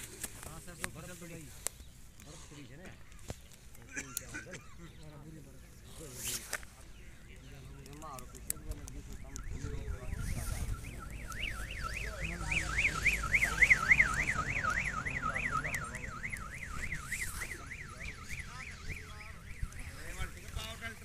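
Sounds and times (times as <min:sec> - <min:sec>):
electronic warbling siren: 0:08.2 - 0:21.0.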